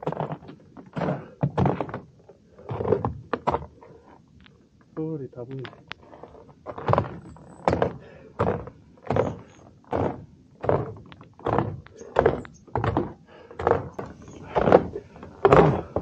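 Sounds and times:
footsteps on stone stairs: 6.9 - 16.0.

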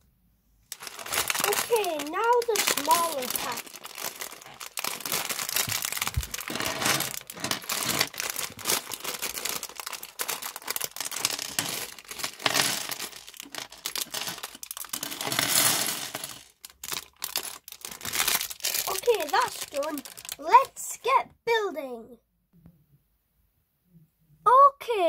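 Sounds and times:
plastic bricks clattering: 0.7 - 20.7
plastic bag crinkling: 0.7 - 20.8.

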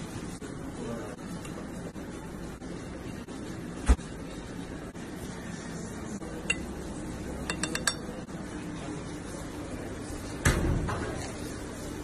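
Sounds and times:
spoon clinking on ceramic plate: 6.4 - 6.7, 7.4 - 8.2.

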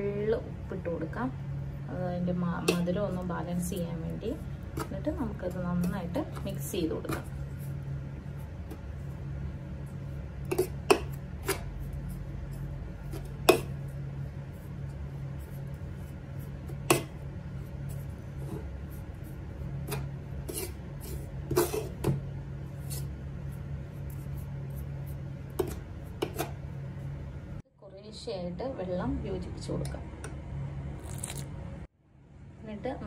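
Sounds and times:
spoon scraping in flour: 2.6 - 27.2.

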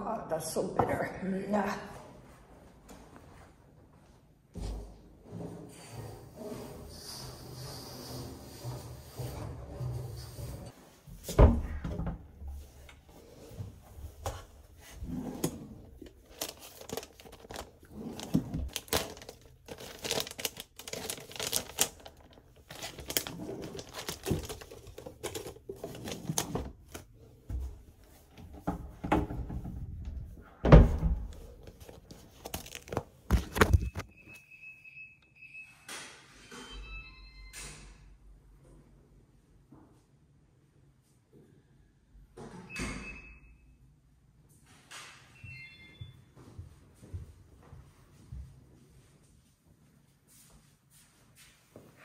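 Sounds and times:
face mask wrapping crinkling: 15.8 - 27.0, 31.5 - 34.1.

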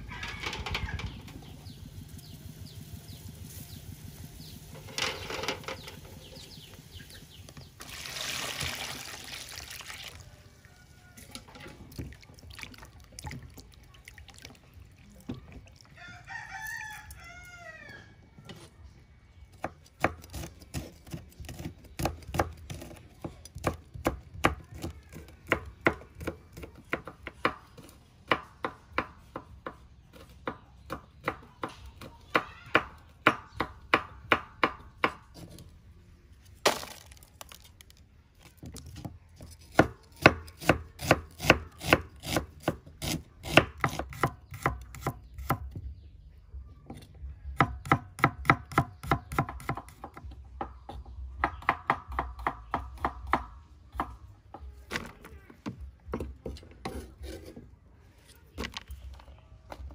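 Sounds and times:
rooster crowing: 0.0 - 1.1, 10.3 - 11.6, 16.0 - 18.2
knife chopping on wooden board: 39.7 - 45.7.

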